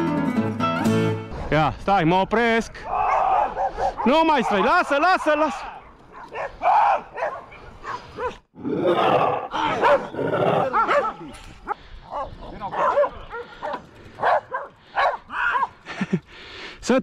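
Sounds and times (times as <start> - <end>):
dogs barking: 3.0 - 8.5, 9.6 - 15.8.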